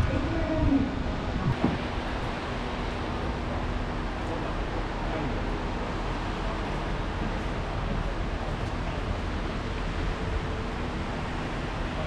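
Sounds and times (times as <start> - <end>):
low rumble: 0.0 - 4.0.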